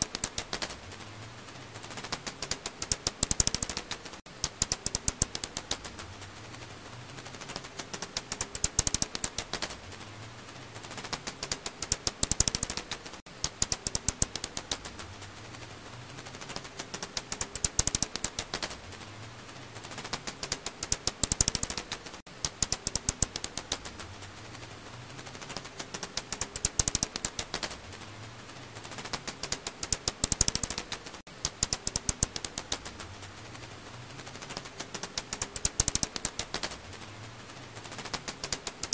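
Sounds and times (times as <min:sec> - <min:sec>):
bat echolocation clicks: 0:02.1 - 0:06.0, 0:07.5 - 0:09.8, 0:11.0 - 0:15.0, 0:16.8 - 0:18.8, 0:20.0 - 0:24.0, 0:25.6 - 0:27.8, 0:28.9 - 0:33.0, 0:34.6 - 0:36.8.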